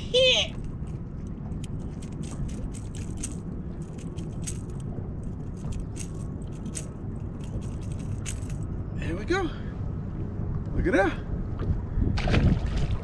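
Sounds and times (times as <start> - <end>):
steady low rumble: 0.0 - 13.0
light clicking and rattling: 0.5 - 8.7.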